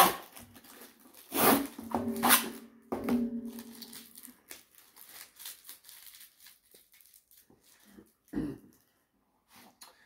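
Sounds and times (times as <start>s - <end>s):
tape peeled off cardboard box: 0.0s - 2.6s.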